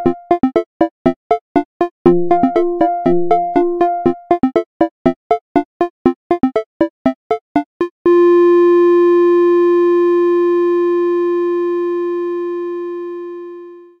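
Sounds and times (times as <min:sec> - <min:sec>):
happy cartoon tune: 0:01.6 - 0:04.9.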